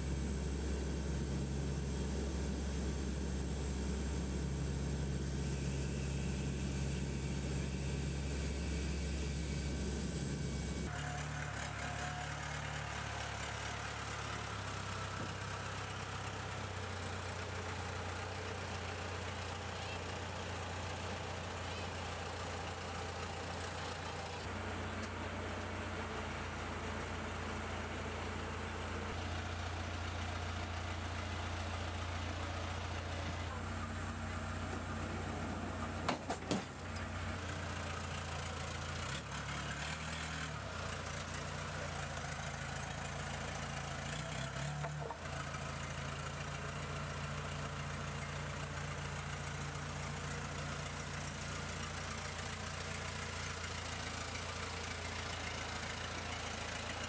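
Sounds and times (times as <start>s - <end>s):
engines droning: 0.0s - 13.6s.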